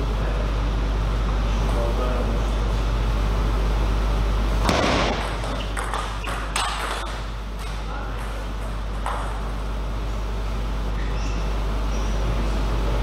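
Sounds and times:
steady low hum: 0.0 - 13.0
table tennis ball hitting bats: 4.6 - 9.6
ball bouncing on table: 4.7 - 9.4.

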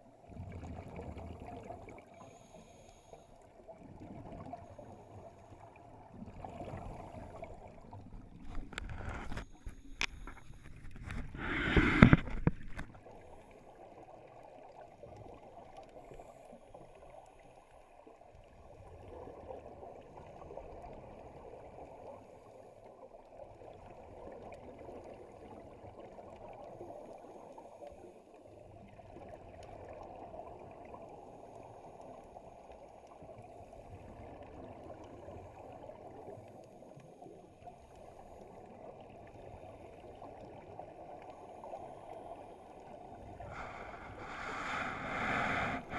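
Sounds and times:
muffled underwater rush: 3.7 - 13.5, 37.8 - 45.9
scuba regulator bubbling: 6.4 - 13.0, 42.8 - 45.9.

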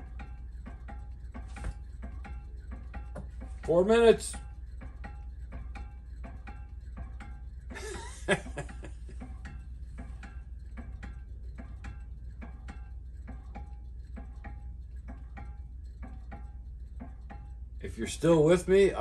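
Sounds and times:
fan mechanism ticking: 0.0 - 19.0
person laughing: 7.7 - 9.1.

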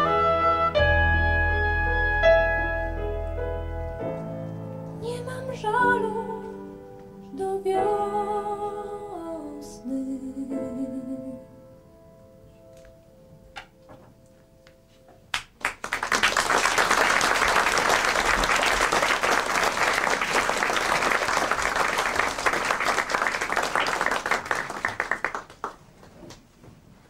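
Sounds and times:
audience applause: 15.4 - 26.1.

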